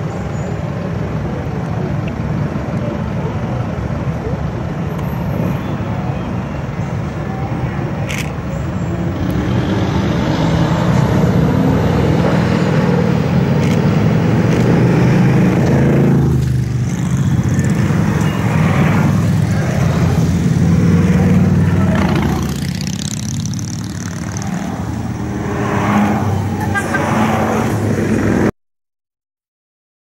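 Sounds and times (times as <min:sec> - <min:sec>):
motorcycle engines revving: 0:07.1 - 0:28.5.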